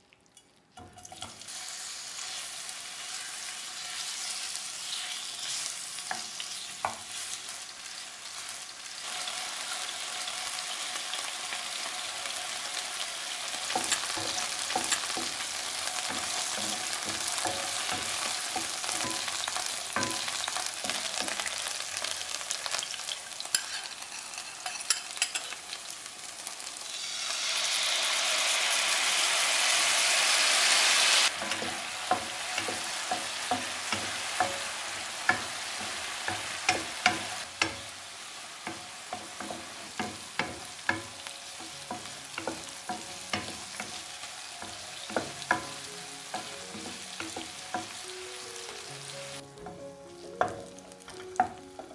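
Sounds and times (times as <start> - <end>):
chicken sizzling in oil: 0.9 - 51.9
sauce sizzling in hot pan: 1.1 - 51.9
wooden spatula knocking pan: 13.7 - 21.6, 31.3 - 37.9, 38.6 - 48.0.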